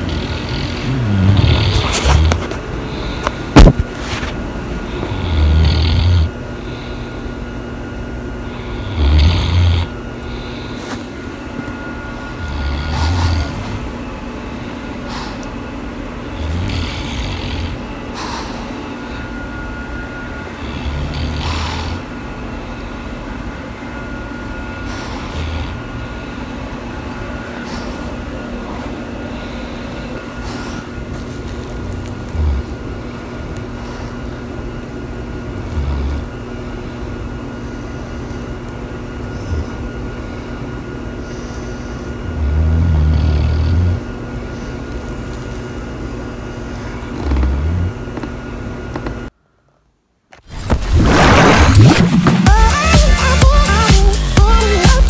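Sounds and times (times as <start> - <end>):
dog snoring: 0.0 - 7.0, 8.4 - 11.0, 12.2 - 13.9, 16.3 - 19.3, 20.5 - 22.1, 24.8 - 26.0, 28.7 - 34.2, 35.4 - 36.4, 39.2 - 40.5, 41.2 - 45.5, 46.6 - 48.3
steady low hum: 0.0 - 55.0.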